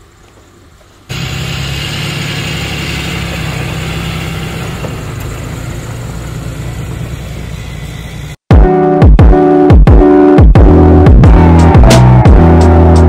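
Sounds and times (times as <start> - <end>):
road and tyre noise: 0.0 - 8.5
pickup truck engine driving past: 1.1 - 8.4.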